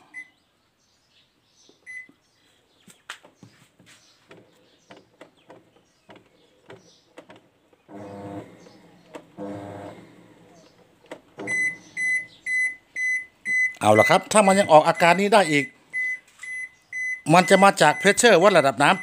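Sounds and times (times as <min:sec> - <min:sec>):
washing machine alarm beeping: 0:00.1 - 0:00.4, 0:01.9 - 0:02.1, 0:11.4 - 0:19.0.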